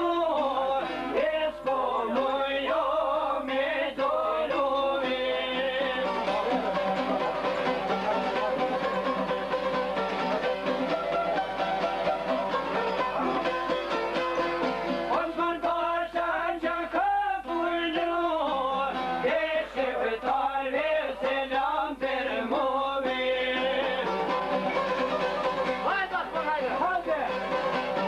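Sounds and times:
man singing: 0.0 - 7.2, 15.1 - 24.3
plucked lute music: 0.0 - 16.4, 17.5 - 28.0.

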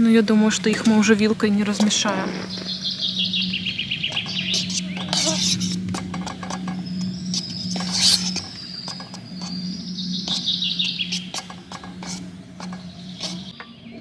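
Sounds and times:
birds chirping: 0.0 - 14.0
low hum: 0.0 - 14.0.

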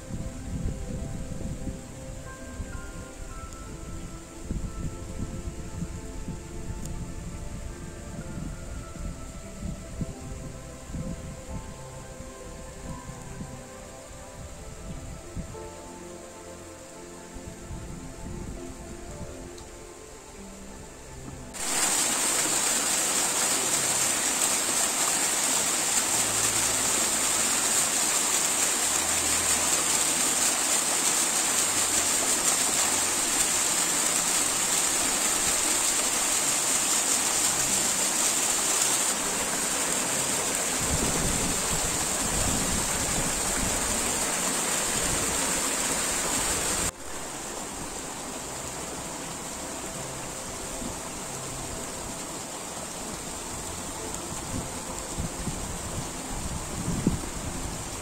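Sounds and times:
waterfall splashing over rocks: 21.2 - 58.0.

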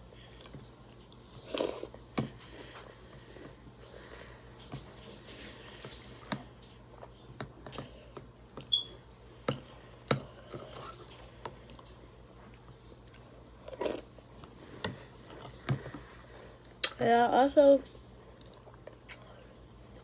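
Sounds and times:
crunchy cereal being chewed: 10.8 - 14.3.

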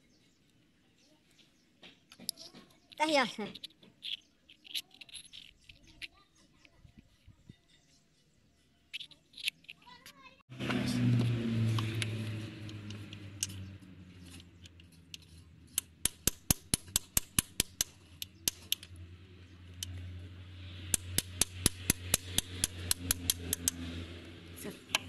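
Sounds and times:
hammer tapping on metal: 20.9 - 23.8.

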